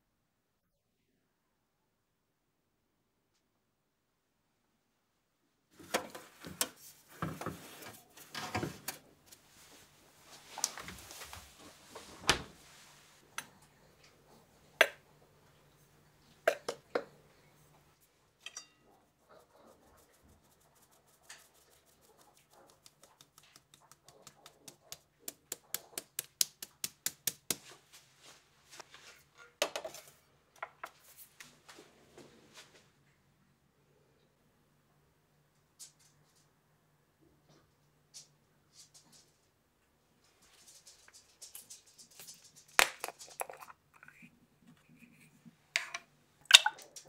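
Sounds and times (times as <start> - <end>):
flour sifting through metal sieve: 19.1 - 29.3.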